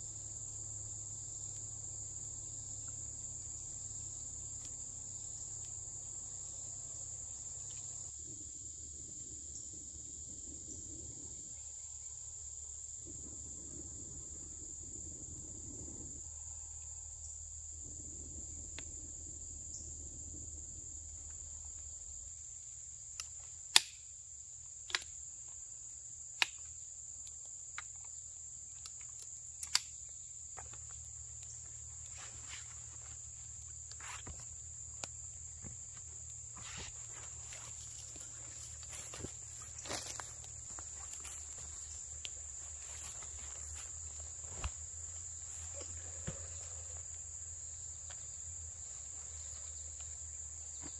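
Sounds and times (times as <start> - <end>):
forest insects droning: 0.0 - 50.9
sharp clicks: 23.2 - 24.0.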